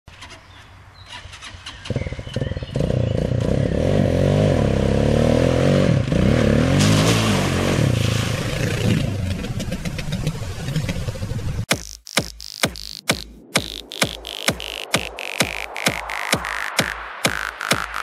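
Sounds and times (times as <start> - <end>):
quad bike engine revving: 1.2 - 11.6.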